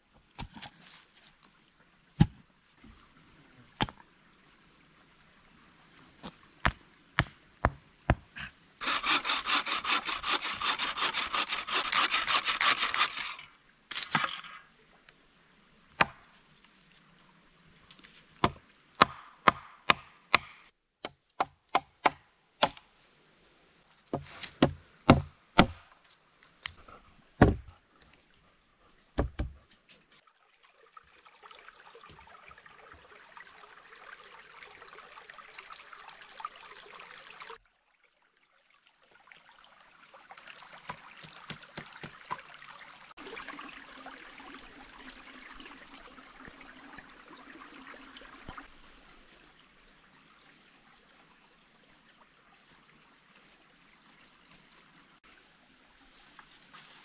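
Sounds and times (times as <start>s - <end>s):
stream trickling over stones: 0.0s - 20.6s, 29.9s - 57.0s
chopping blows on wood: 18.4s - 22.8s, 24.1s - 25.8s.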